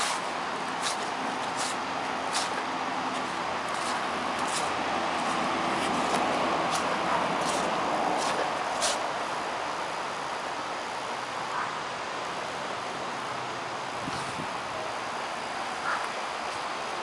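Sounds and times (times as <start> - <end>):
footsteps on wet grass: 0.0 - 9.2
creek rushing: 0.0 - 10.8.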